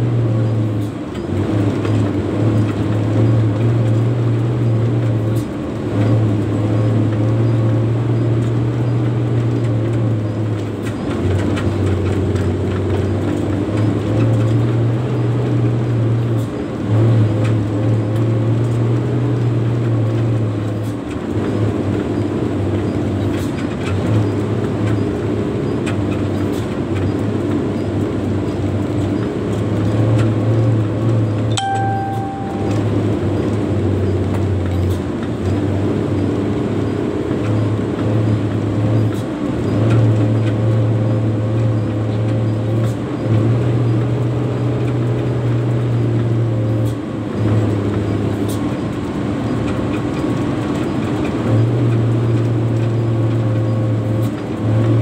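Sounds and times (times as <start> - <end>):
diesel truck engine drone: 0.0 - 55.0
short beep: 31.5 - 33.2.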